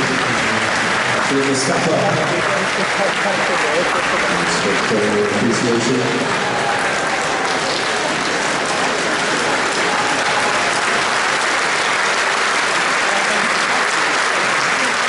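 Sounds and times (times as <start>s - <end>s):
crowd applauding: 0.0s - 15.0s.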